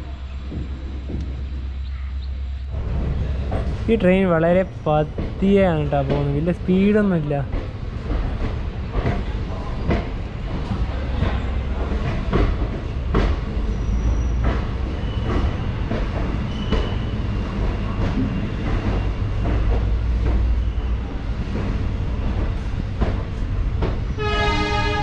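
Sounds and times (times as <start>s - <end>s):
train rumbling: 0.0s - 25.0s
wheels clicking over rail joints: 2.8s - 25.0s.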